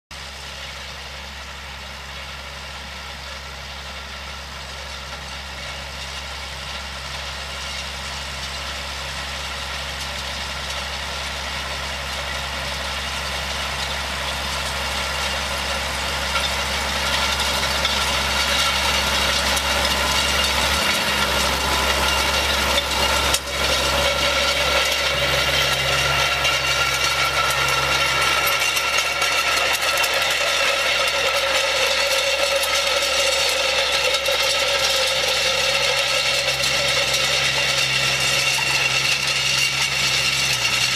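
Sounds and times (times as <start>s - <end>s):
tractor diesel engine running: 0.1s - 40.9s.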